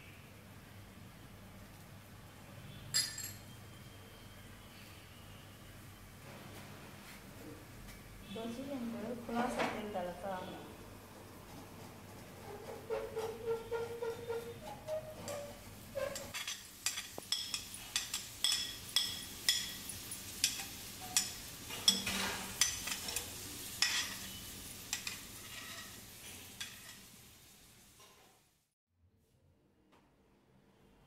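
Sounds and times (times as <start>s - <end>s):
utensil clinking glass bowl: 2.9s - 3.6s.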